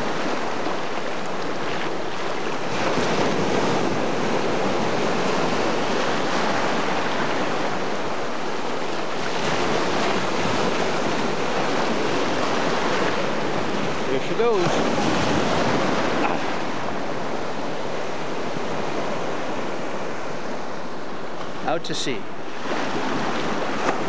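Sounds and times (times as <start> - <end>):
ocean waves breaking: 0.0 - 24.0.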